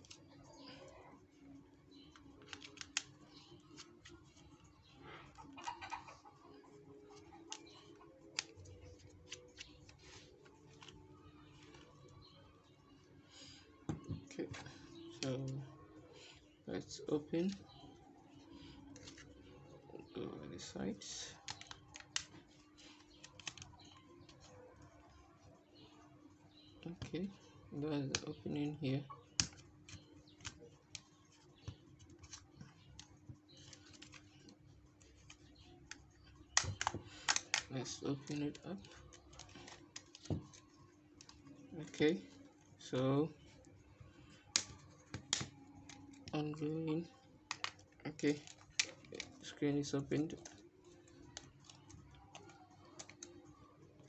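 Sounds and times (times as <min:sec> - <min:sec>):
plastic pick clicking and scraping: 0:47.5 - 0:47.8.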